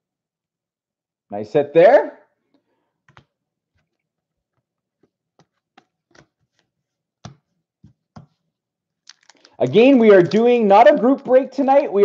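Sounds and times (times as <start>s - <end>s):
cards clicking and tapping: 3.0s - 8.4s, 9.1s - 11.4s.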